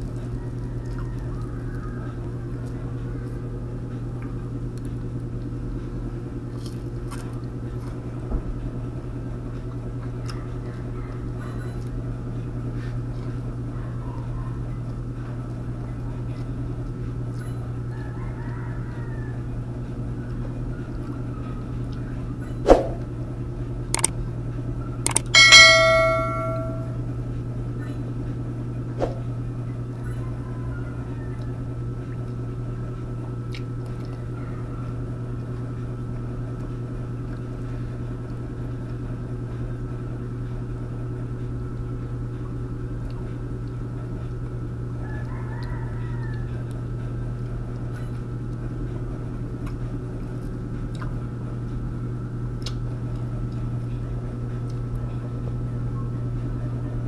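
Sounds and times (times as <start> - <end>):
steady low hum: 0.0 - 45.0
rooster crowing faintly: 0.1 - 2.6, 17.8 - 19.7, 30.1 - 31.8, 45.0 - 46.8
dishes clinking: 25.4 - 27.0.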